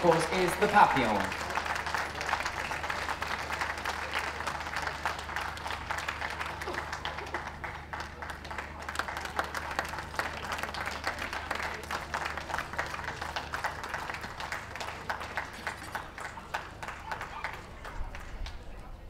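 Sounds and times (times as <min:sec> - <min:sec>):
crowd applauding: 0:00.0 - 0:19.0.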